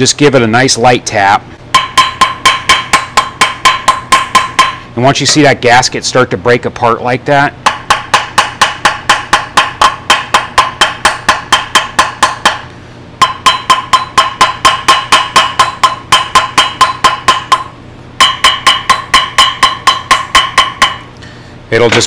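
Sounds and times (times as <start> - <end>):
hammer tapping metal cylinder: 1.7 - 4.8, 7.6 - 21.1.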